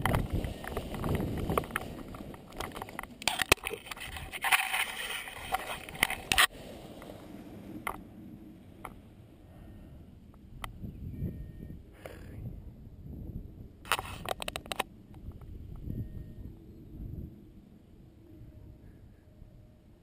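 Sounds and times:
rustling and scraping of harness: 0.0s - 7.1s, 13.9s - 14.8s
wind buffeting microphone: 0.0s - 20.0s.

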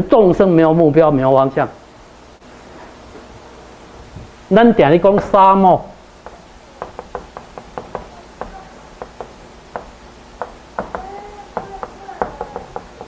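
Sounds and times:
chalk tapping on a blackboard: 6.2s - 13.0s.

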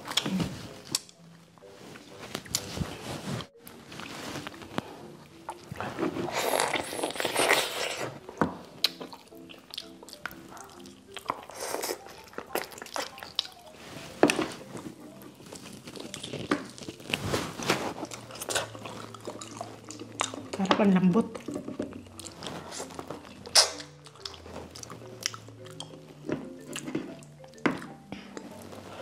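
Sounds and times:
person biting and chewing: 5.4s - 8.2s, 8.8s - 13.6s, 14.7s - 20.6s, 21.3s - 28.8s
mouth clicks: 23.4s - 24.4s.

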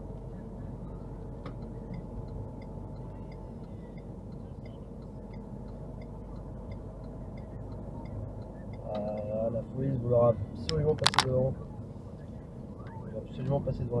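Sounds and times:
car road and engine noise: 0.0s - 14.0s
faint regular ticking: 1.4s - 9.3s.

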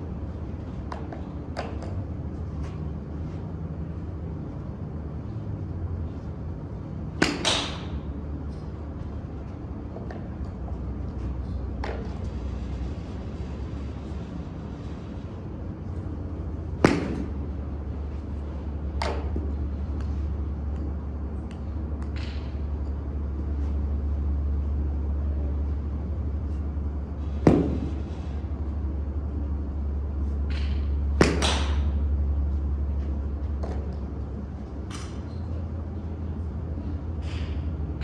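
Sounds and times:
steady low hum: 0.0s - 38.0s
golf club striking balls: 7.2s - 8.0s, 16.7s - 17.5s, 18.9s - 20.9s, 22.0s - 22.6s, 30.4s - 32.1s.

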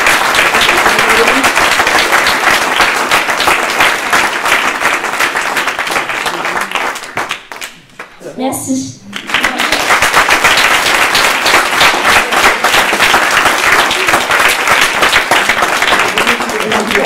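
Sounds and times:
audience applause: 0.0s - 8.1s, 9.1s - 17.0s.

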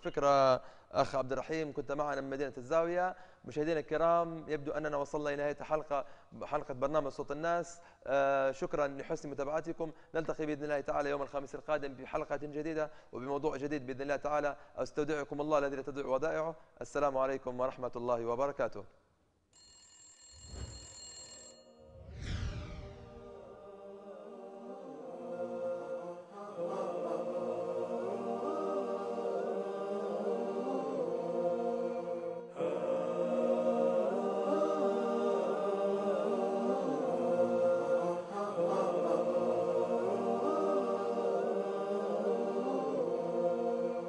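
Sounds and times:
chanted vocal melody: 23.1s - 44.0s.

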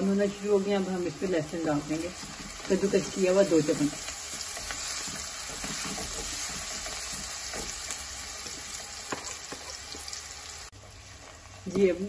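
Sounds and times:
onions sizzling in hot oil: 0.0s - 12.0s
spatula scraping and tapping pan: 2.0s - 10.2s.

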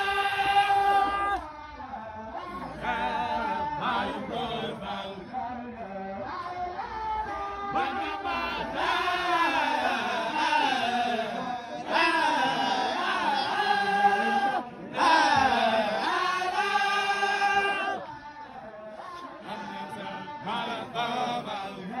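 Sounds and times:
group chanting in unison: 0.0s - 22.0s.

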